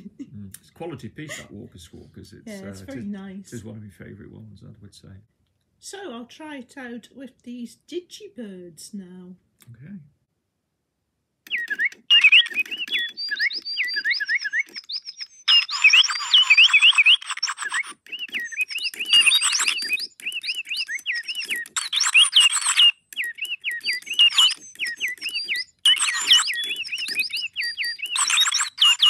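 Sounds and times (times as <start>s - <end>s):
electronic toy birdsong: 11.5s - 29.0s.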